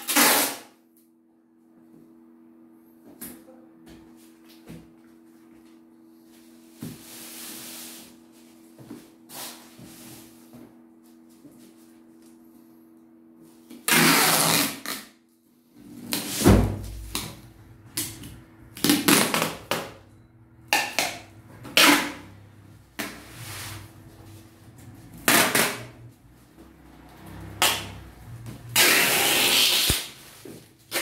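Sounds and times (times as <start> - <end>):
packing tape pulled off roll: 0.0 - 0.7, 13.8 - 15.1, 28.8 - 30.2.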